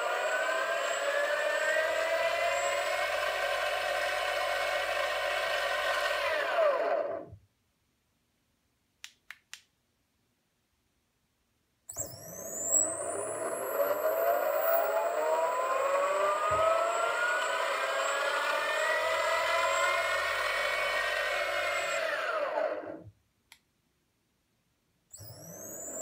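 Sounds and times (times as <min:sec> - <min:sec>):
electric motor whine rising in pitch: 0:00.0 - 0:07.4, 0:11.9 - 0:23.1, 0:25.2 - 0:26.0
high steady electronic whine: 0:11.9 - 0:22.9.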